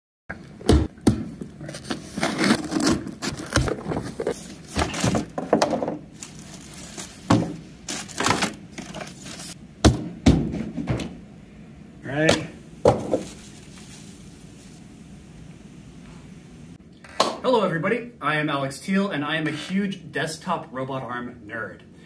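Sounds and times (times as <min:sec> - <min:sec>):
cardboard thunks and scrapes: 0:00.6 - 0:09.6
packing tape cut: 0:01.6 - 0:05.3, 0:07.9 - 0:09.6
plastic crinkling: 0:01.6 - 0:05.4, 0:06.1 - 0:09.6, 0:13.0 - 0:14.8.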